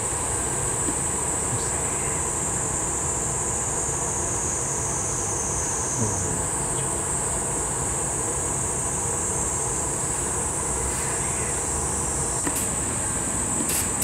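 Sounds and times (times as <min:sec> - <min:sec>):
high-pitched hiss: 0:00.0 - 0:06.4, 0:08.8 - 0:14.0
furnace burner roaring: 0:09.2 - 0:14.0.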